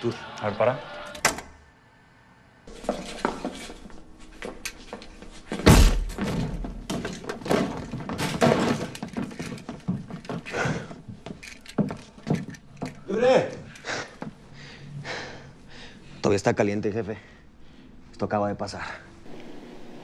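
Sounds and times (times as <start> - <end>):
thuds and knocks: 5.6 - 9.1.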